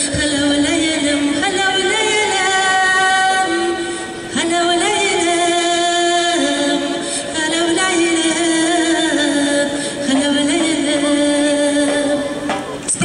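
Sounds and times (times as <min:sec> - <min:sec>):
woman singing folk song: 0:00.0 - 0:13.0.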